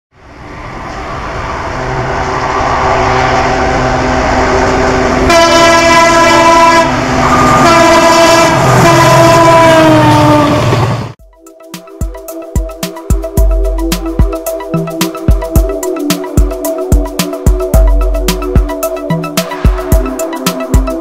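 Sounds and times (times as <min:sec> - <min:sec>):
diesel locomotive engine drone: 0:00.1 - 0:21.0
locomotive air horn: 0:02.5 - 0:10.7.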